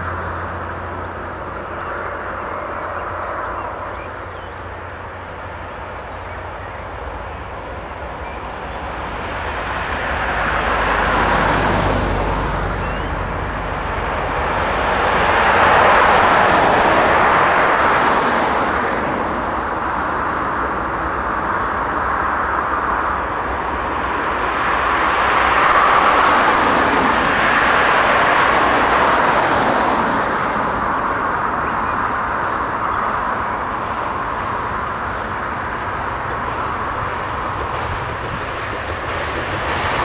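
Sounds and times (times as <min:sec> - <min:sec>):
steam locomotive exhaust and running: 0:30.9 - 0:40.0.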